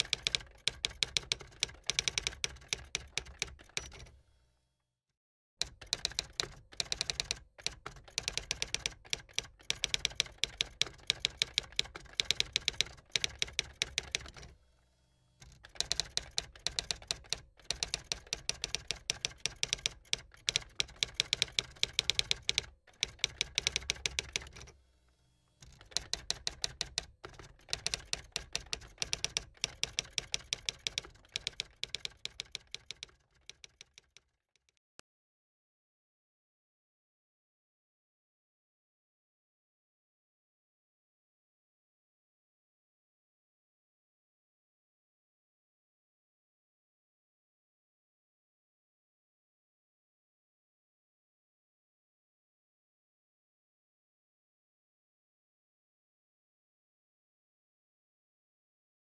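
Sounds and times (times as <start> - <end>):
manual typewriter typing: 0.0 - 4.1, 5.6 - 14.5, 15.4 - 24.8, 25.6 - 34.4.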